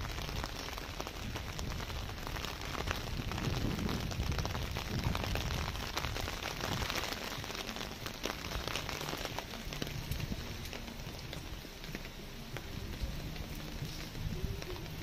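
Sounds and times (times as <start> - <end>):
light rain on wet street: 0.0 - 15.0.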